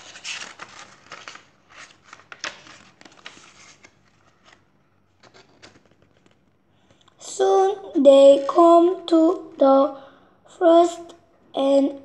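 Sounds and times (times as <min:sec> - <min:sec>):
book pages rustling: 0:00.0 - 0:07.0.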